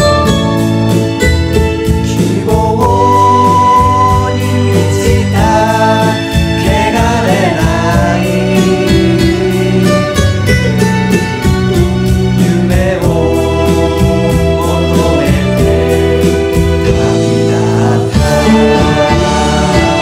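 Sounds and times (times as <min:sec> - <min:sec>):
instrumental accompaniment: 0:00.0 - 0:20.0
voices singing in chorus: 0:02.2 - 0:10.0, 0:12.4 - 0:20.0.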